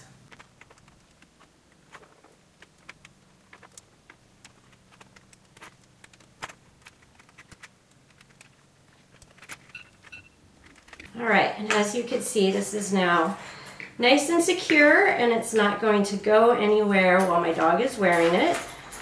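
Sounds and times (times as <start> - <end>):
dog collar clicks and rustles: 17.2 - 19.0.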